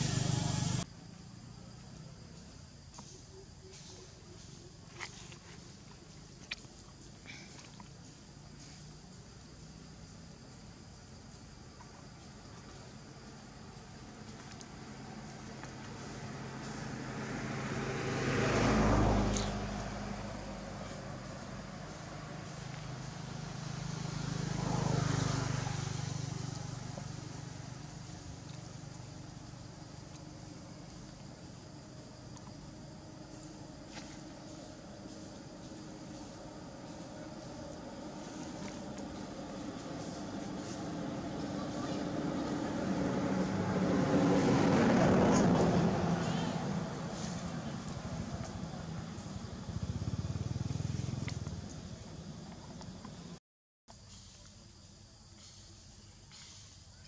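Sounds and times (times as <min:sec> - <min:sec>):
vehicle engine passing by: 0:00.0 - 0:02.2, 0:12.6 - 0:53.4.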